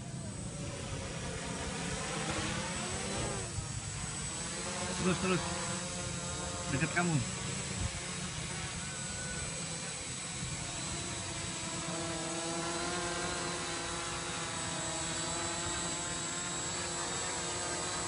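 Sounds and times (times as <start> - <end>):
drone propellers whirring: 0.0 - 18.0.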